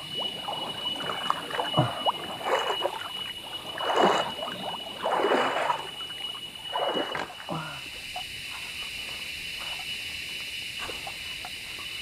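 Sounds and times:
water draining through slats: 0.0s - 7.8s
high insect drone: 0.0s - 12.0s
water splashing and sloshing: 0.0s - 12.0s.

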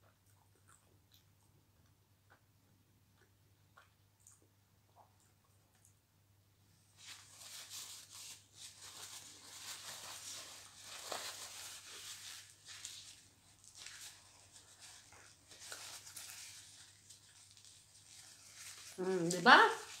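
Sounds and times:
paper napkin rustling: 7.0s - 20.0s.

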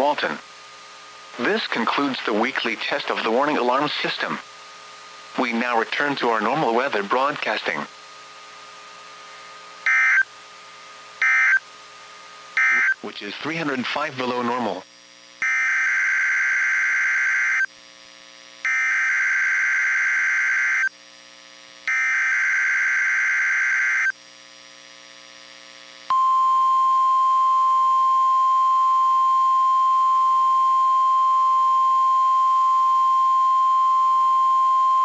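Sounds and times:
digital data tone bursts: 9.8s - 10.3s, 11.2s - 11.6s, 12.6s - 13.0s
steady warning alarm tone: 9.8s - 10.3s, 11.2s - 11.6s, 12.6s - 13.0s, 15.4s - 17.7s, 21.9s - 24.1s.

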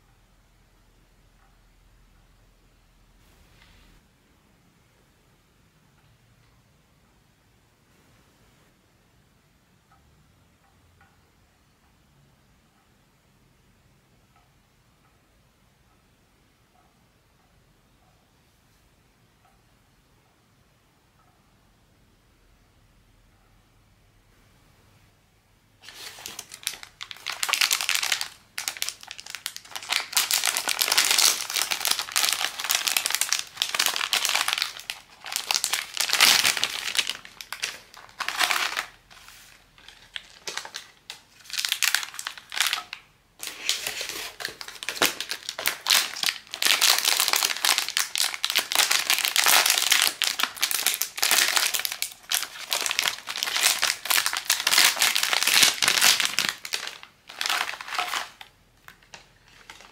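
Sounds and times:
plastic packaging crinkling: 25.8s - 59.9s.

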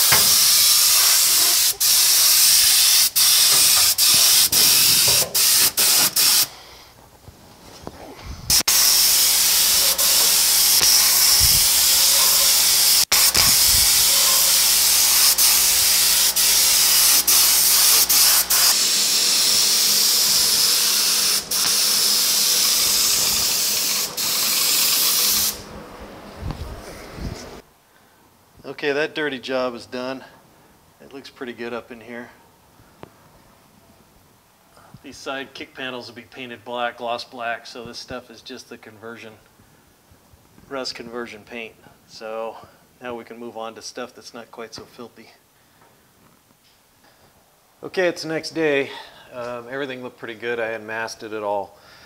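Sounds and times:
spray gun hissing: 0.0s - 6.5s, 8.5s - 25.7s.

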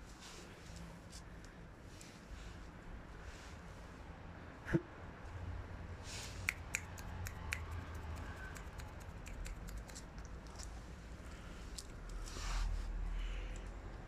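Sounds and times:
dog claws clicking on stone tiles: 6.7s - 10.7s.

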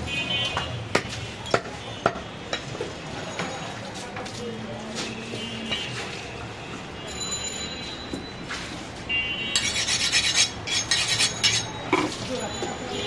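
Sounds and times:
cleaver sharpened on steel rod: 9.6s - 11.7s.

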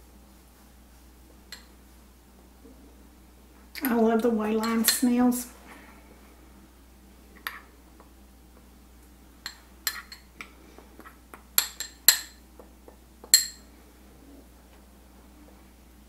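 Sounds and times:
metal spoon clinking glass bowl: 11.6s - 12.4s, 13.3s - 13.7s.

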